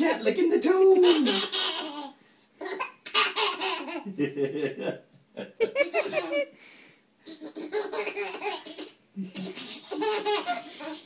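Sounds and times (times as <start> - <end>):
baby giggling: 0.9 - 4.8, 5.5 - 6.5, 7.3 - 11.0.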